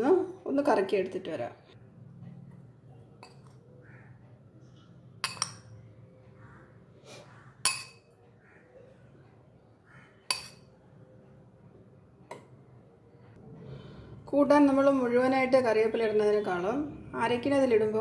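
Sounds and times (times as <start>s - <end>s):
metal spoon clinking: 3.2s - 3.6s, 5.2s - 5.8s, 7.6s - 8.1s, 10.3s - 10.7s.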